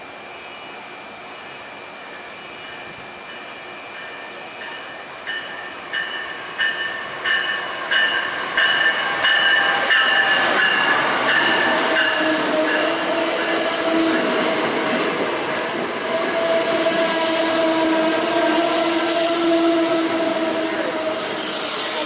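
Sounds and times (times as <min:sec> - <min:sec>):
locomotive bell ringing: 0:01.5 - 0:13.1.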